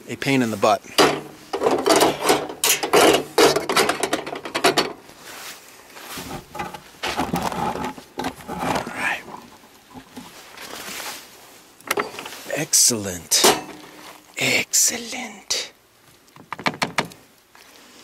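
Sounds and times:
handling clicks and knocks: 0.9s - 5.0s, 13.3s - 14.1s, 16.3s - 17.2s.

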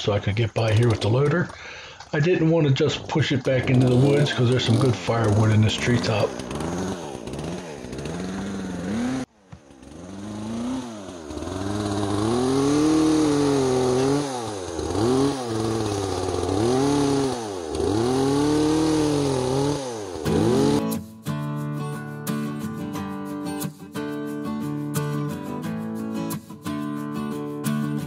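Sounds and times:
chainsaw revving and cutting: 3.1s - 21.1s.

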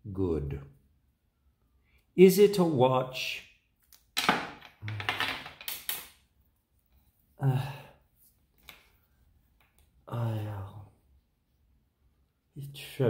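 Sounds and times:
man humming or sighing: 7.4s - 8.0s, 10.1s - 10.8s.

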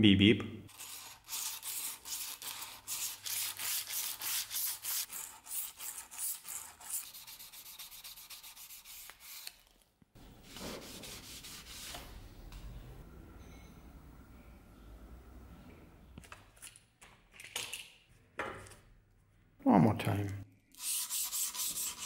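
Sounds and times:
abrasive paper rubbing steel blade: 0.7s - 9.6s, 20.8s - 22.0s.

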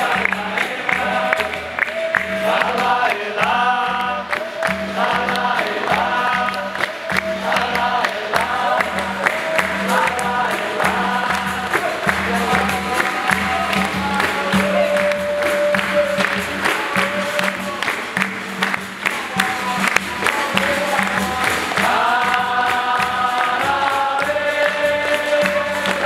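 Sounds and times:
berimbau pandeiro and drum: 0.0s - 26.0s
group singing: 0.0s - 26.0s.

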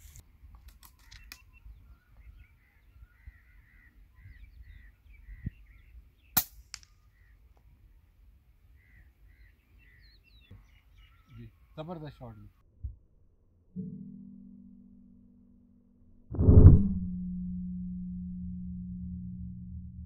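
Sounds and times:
birds calling: 0.7s - 12.6s.

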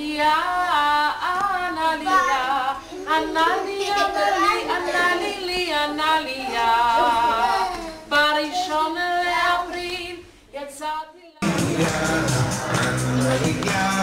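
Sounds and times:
person singing: 10.9s - 14.0s.

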